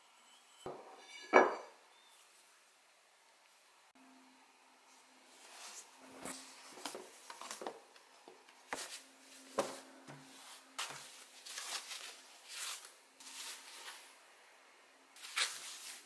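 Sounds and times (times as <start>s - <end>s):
foam packing sheets crinkling: 10.4s - 14.1s, 15.2s - 16.0s.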